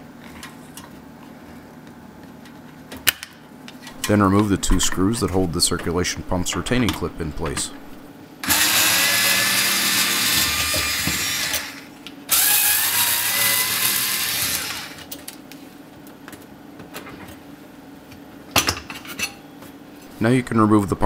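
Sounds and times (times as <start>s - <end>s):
cordless screwdriver running: 8.4s - 15.0s.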